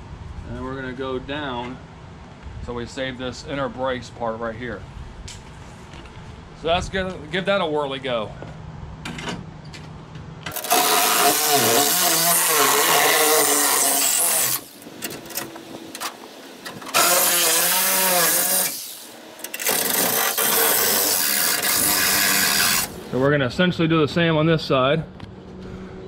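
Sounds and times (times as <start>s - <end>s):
reciprocating saw cutting sheet steel: 10.5s - 14.8s, 16.9s - 23.2s.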